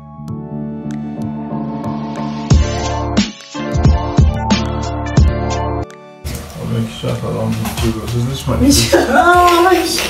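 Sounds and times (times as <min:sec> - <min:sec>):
drum beat with deep bass: 0:02.5 - 0:05.6.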